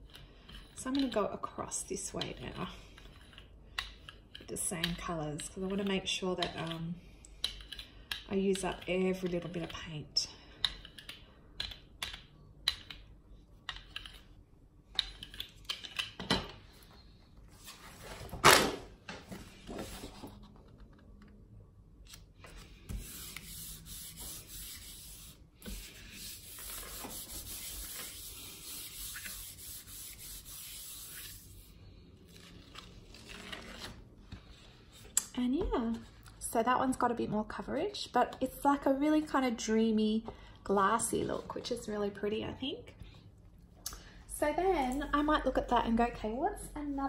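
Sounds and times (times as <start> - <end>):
hands rubbing paper: 22.5 - 31.7.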